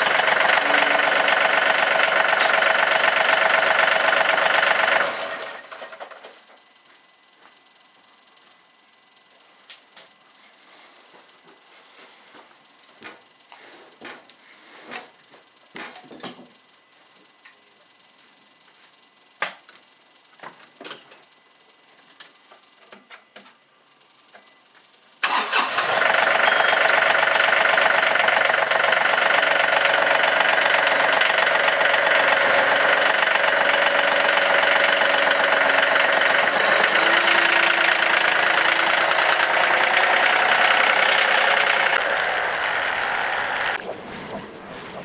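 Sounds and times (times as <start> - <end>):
diesel tractor engine running: 0.0 - 6.6, 25.2 - 45.0.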